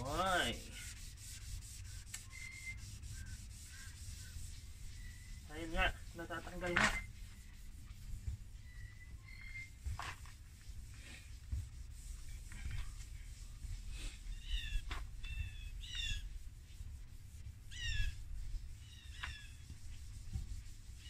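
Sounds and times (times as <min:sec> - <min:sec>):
bird chirping: 0:02.2 - 0:05.5, 0:08.6 - 0:09.8, 0:14.3 - 0:16.3, 0:17.7 - 0:18.2.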